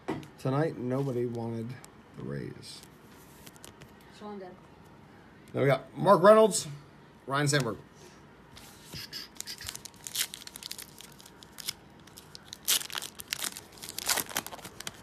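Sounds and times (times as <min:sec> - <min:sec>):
foil wrapper tearing and crinkling: 0:09.4 - 0:15.0.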